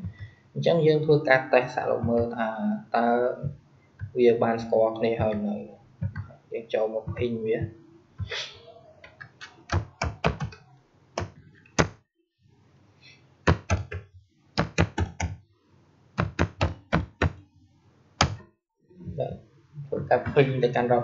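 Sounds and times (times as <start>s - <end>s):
keyboard typing clicks: 9.1s - 10.6s.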